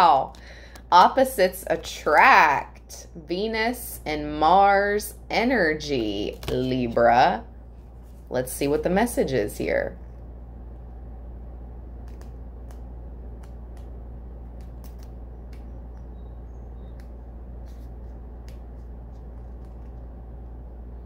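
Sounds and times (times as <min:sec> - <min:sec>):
steady low hum: 0:00.0 - 0:21.0
cards clicking when handled: 0:12.0 - 0:15.7.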